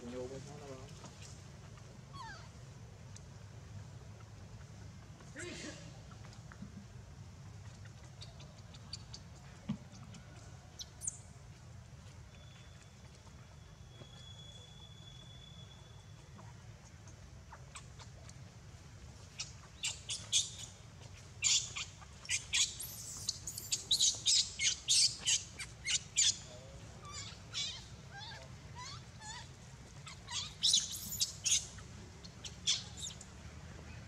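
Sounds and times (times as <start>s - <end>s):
animals chirping and squawking: 19.2s - 33.2s.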